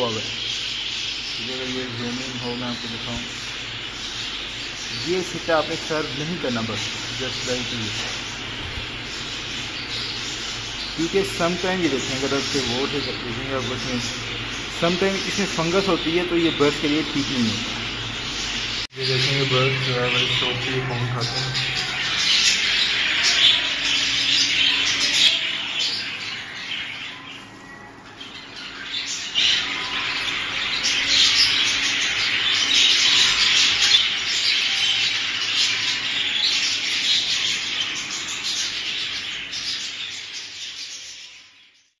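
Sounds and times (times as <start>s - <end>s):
budgerigars chattering and chirping: 0.0s - 42.0s.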